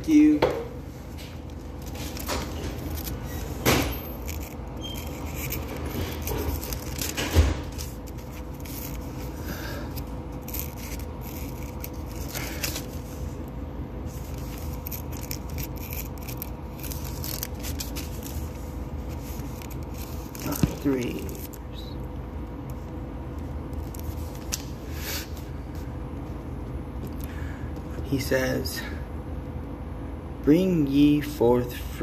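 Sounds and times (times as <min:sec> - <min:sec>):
steady low hum: 0:00.0 - 0:32.0
phone handling scraping and rubbing: 0:01.1 - 0:13.3, 0:14.0 - 0:21.5.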